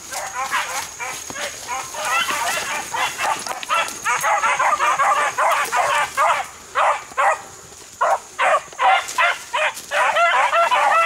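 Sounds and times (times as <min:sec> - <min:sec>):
hounds baying: 0:00.0 - 0:11.0.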